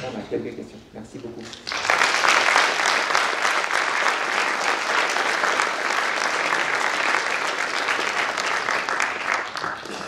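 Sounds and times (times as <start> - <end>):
audience applauding: 1.5 - 10.0.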